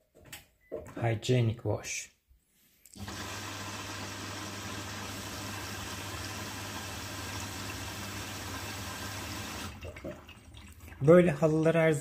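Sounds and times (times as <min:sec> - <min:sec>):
water running into washing machine: 0:03.0 - 0:11.1.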